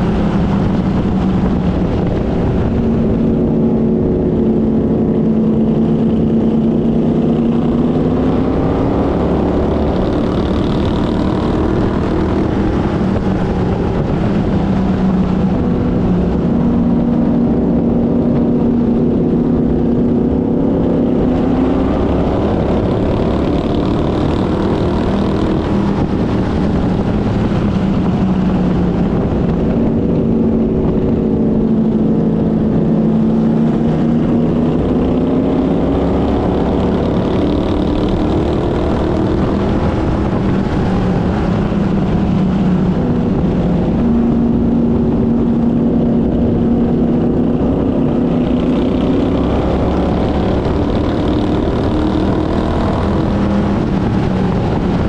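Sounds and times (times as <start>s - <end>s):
race car engine revving: 0.0s - 55.0s
road and wind noise: 0.0s - 55.0s.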